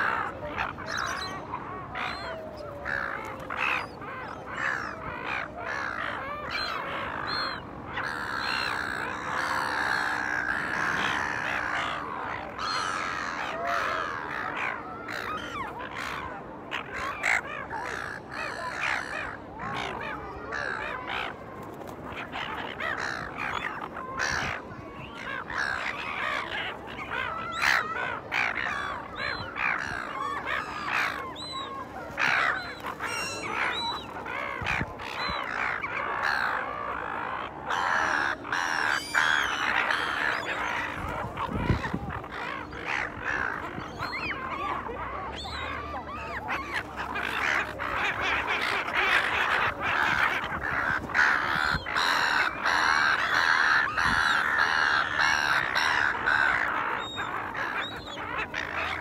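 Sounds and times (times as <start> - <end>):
gulls squawking: 0.0 - 59.0.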